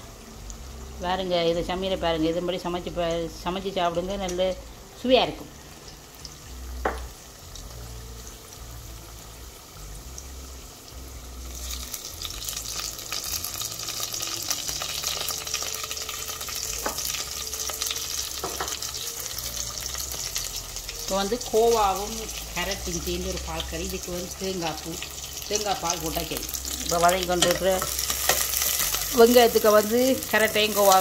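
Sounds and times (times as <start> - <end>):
onions sizzling in oil: 0.0 - 31.0.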